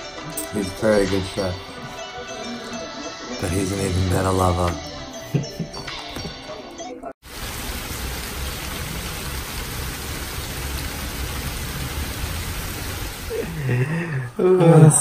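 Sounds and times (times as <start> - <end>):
rainfall hiss: 7.2 - 14.2.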